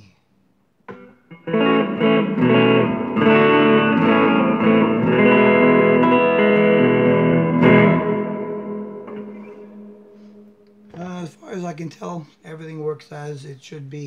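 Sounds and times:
electric guitar chords ringing: 0:00.8 - 0:11.8.

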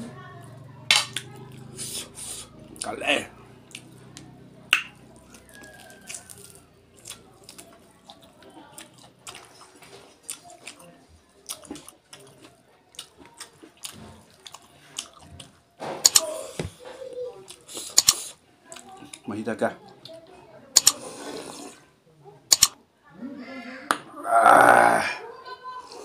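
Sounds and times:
wet chewing and lip smacking: 0:03.6 - 0:16.3.

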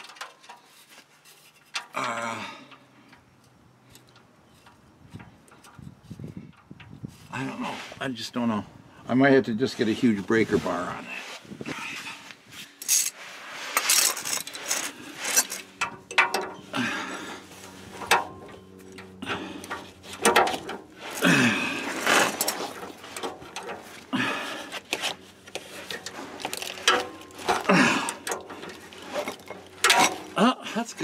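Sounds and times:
low grunts of effort: 0:01.9 - 0:02.7, 0:07.3 - 0:07.8, 0:21.1 - 0:22.3, 0:24.1 - 0:24.7, 0:27.6 - 0:28.3.

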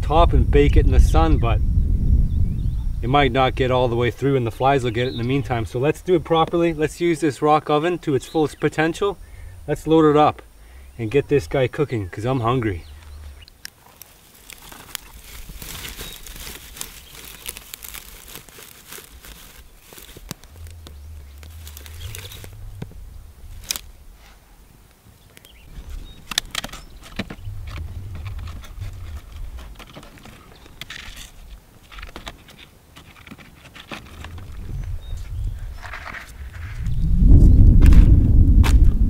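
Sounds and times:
dry grass and twigs rustling: 0:03.8 - 0:38.8
kindling cracking in fire: 0:12.6 - 0:39.0.

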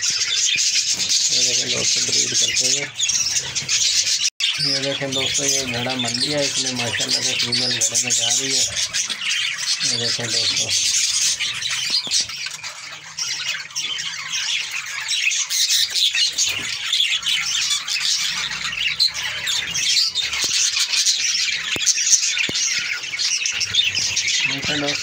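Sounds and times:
budgerigars chattering: 0:00.0 - 0:25.0.

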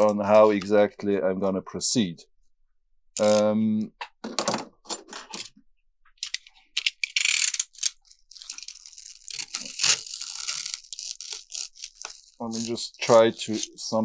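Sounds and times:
foam insulation crunching and snapping: 0:08.4 - 0:13.9.

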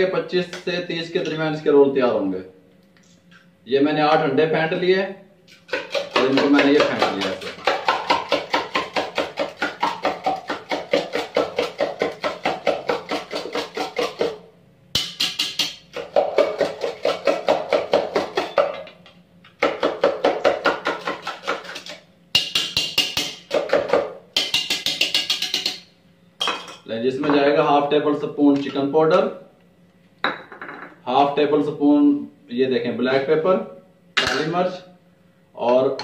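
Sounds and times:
eggs beaten in plastic bowl: 0:05.5 - 0:14.4, 0:15.0 - 0:18.9, 0:19.5 - 0:25.8.

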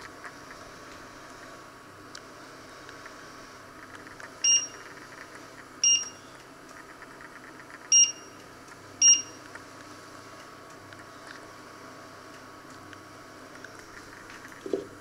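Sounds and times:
hob touch controls beeping: 0:04.4 - 0:04.9, 0:05.8 - 0:06.2, 0:07.9 - 0:08.4, 0:09.0 - 0:09.4.

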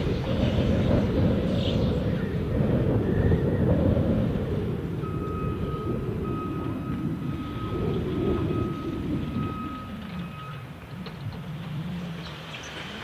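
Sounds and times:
heavy diesel engines rumbling: 0:00.0 - 0:13.0
reversing alarm beeping: 0:05.0 - 0:10.8.

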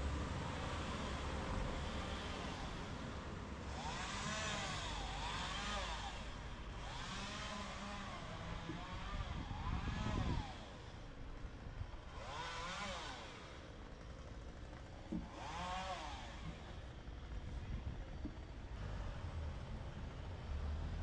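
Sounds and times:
vehicles passing by: 0:00.0 - 0:21.0.

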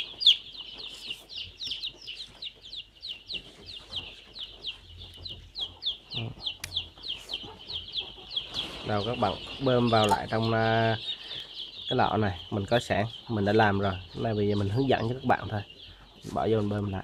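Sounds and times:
chicks peeping: 0:00.0 - 0:17.0.

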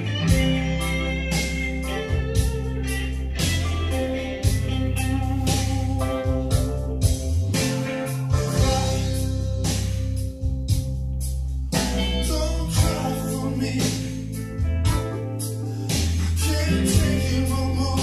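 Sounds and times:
blues-rock song over loudspeakers: 0:00.0 - 0:18.0.

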